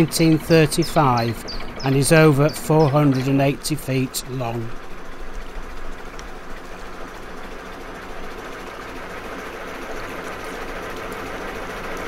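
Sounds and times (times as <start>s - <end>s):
diesel boat engine running: 0.0s - 12.0s.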